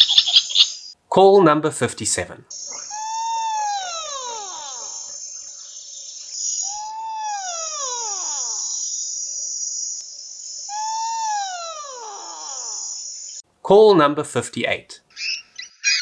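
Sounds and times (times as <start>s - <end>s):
insects chirping: 0.0s - 1.0s, 2.4s - 13.4s
animal call sliding down: 2.7s - 5.2s, 6.7s - 8.7s, 10.7s - 12.8s.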